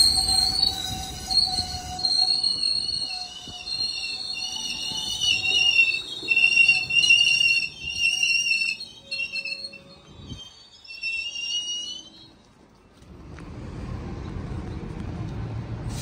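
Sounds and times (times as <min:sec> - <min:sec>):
train wheels squealing: 0:00.0 - 0:12.5
low train rumble: 0:00.0 - 0:16.0.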